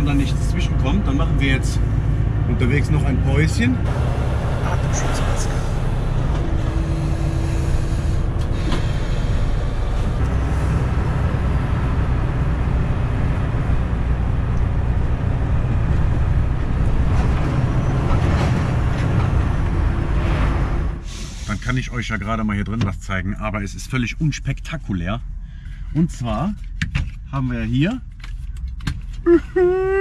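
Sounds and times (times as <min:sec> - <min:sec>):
truck engine drone: 0:00.0 - 0:22.3
road noise: 0:00.0 - 0:30.0.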